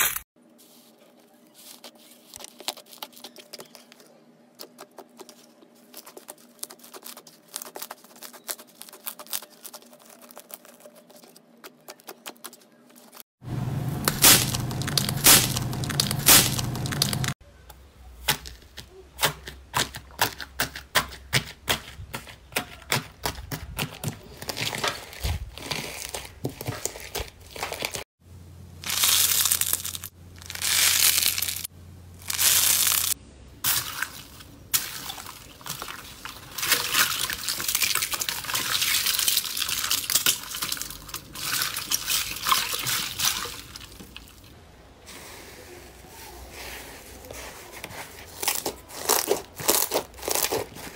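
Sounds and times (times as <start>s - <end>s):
slime squishing: 4.6s - 13.2s, 28.8s - 44.4s
foam slime crackling: 5.2s - 11.4s, 14.0s - 17.4s, 28.8s - 44.2s
water beads crackling in hands: 5.9s - 11.4s, 14.1s - 17.4s, 28.8s - 44.5s.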